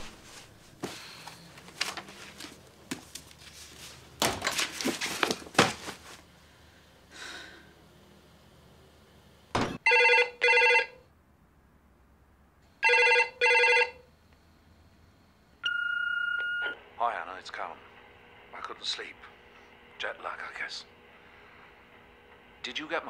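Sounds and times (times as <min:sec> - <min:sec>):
handling rustles and knocks: 0:00.0 - 0:06.3
telephone ringing: 0:09.8 - 0:11.0, 0:12.8 - 0:14.1, 0:15.6 - 0:17.1.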